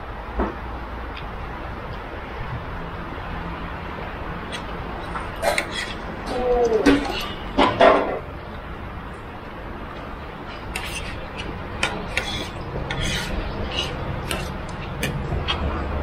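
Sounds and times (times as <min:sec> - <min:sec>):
low background hum: 0:00.0 - 0:16.0
road traffic rumble: 0:00.0 - 0:16.0
cutlery clinking against dishes: 0:05.4 - 0:08.2.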